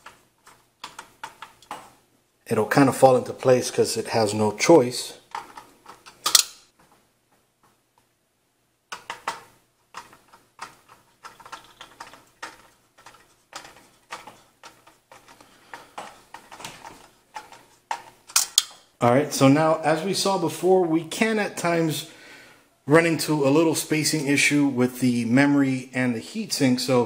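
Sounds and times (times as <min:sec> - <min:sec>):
screwdriver clicking on metal screws: 0:05.3 - 0:06.6, 0:08.9 - 0:15.4.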